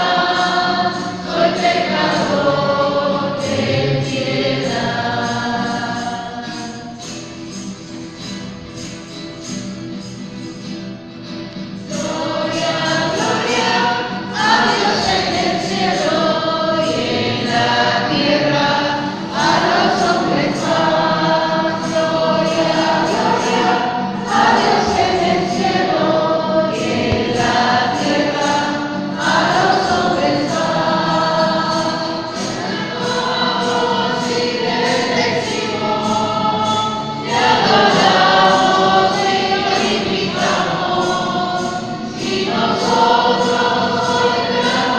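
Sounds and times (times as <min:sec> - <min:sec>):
choir singing a hymn: 0:00.0 - 0:08.8, 0:11.6 - 0:44.9
light steady beat: 0:26.8 - 0:28.8.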